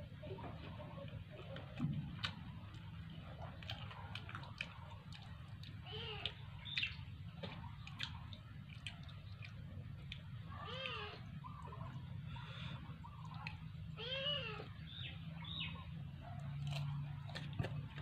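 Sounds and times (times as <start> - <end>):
chewing crunchy fruit: 0.0 - 14.0, 14.6 - 18.0
cat meowing: 10.6 - 11.2, 14.0 - 14.8.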